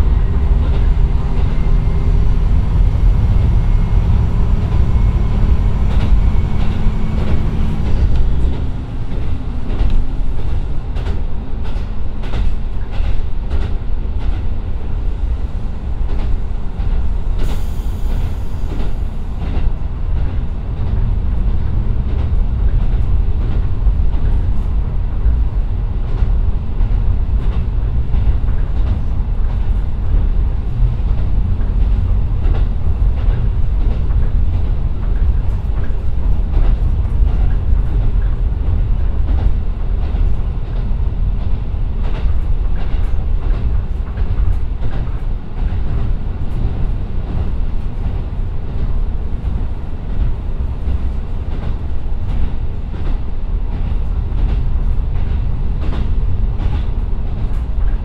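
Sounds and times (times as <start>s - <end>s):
diesel railcar rumble: 0.0s - 58.0s
rail-joint clicks: 0.0s - 58.0s.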